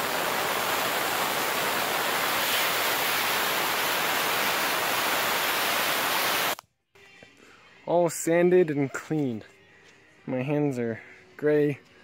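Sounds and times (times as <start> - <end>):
aerosol spray can hissing: 0.0 - 6.6.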